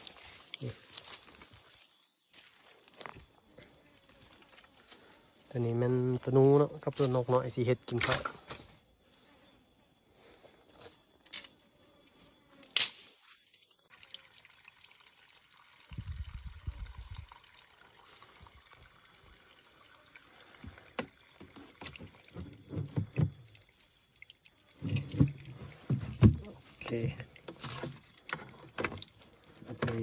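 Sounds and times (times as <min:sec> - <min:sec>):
water trickling into plastic can: 0:13.7 - 0:30.0.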